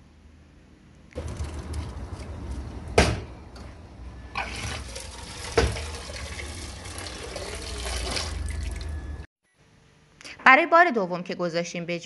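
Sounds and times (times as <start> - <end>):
water pouring into metal colander: 4.4 - 9.2.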